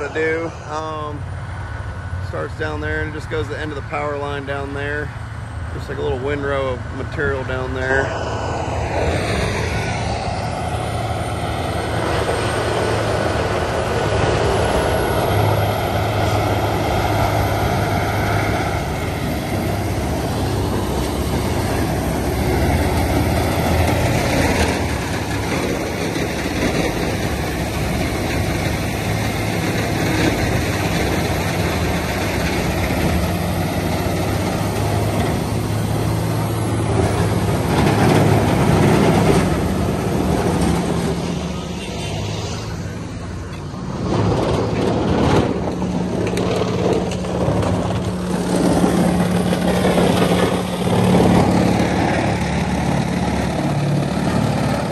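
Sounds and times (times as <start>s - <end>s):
diesel engine running: 0.0s - 54.9s.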